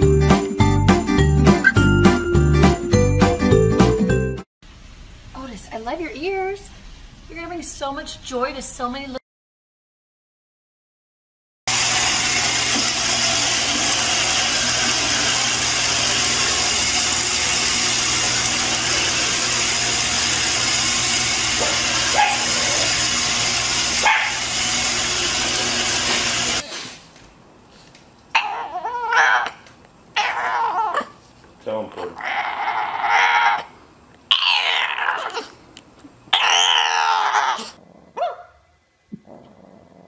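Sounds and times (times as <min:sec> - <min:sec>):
robot vacuum cleaner running: 0:11.7 - 0:26.6.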